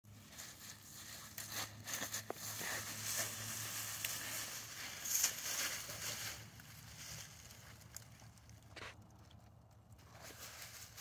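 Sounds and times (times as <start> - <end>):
dry leaves rustling and crunching: 0.1 - 11.0.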